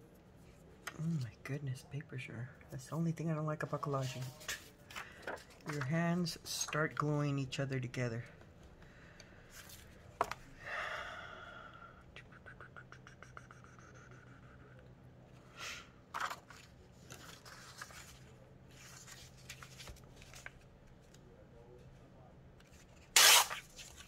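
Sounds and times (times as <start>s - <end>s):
paper rustling and scraping: 3.7s - 6.0s, 16.2s - 20.6s.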